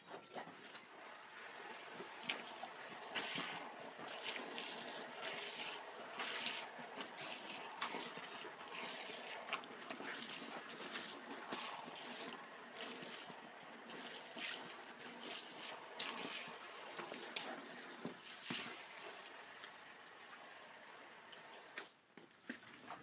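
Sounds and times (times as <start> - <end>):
hose spray hissing and splashing: 0.9 - 21.9
rubber boots squelching on wet rug: 1.8 - 13.4.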